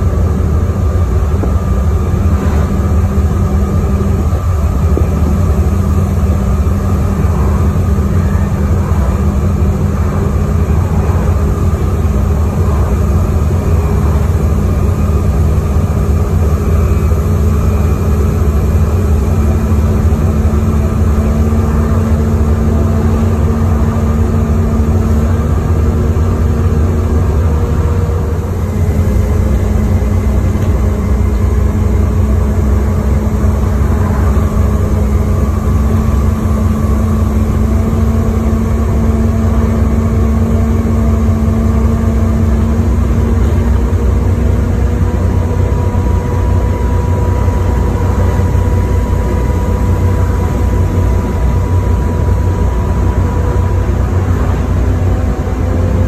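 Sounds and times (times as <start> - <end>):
bus diesel engine drone: 0.0 - 56.0
road and body noise: 0.0 - 56.0.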